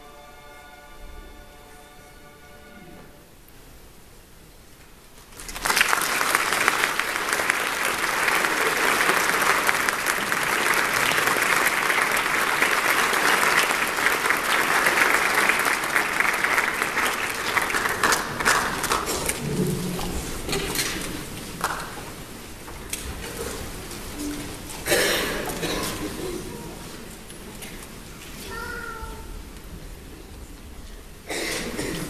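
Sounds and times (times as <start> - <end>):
audience applauding: 5.3 - 23.2.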